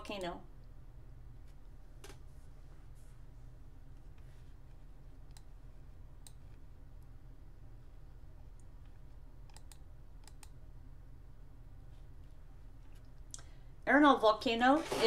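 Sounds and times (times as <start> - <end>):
faint low hum: 0.0 - 15.0
computer mouse clicks: 4.7 - 5.5, 6.2 - 6.6, 8.6 - 10.6.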